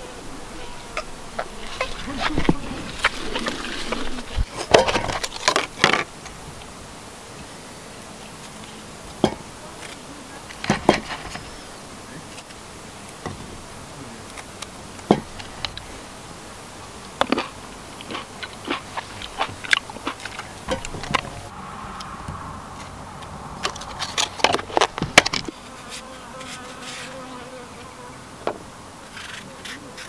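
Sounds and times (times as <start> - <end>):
faint steady buzz: 0.0 - 30.0
sharp clicks and knocks: 17.2 - 21.5, 22.3 - 25.5.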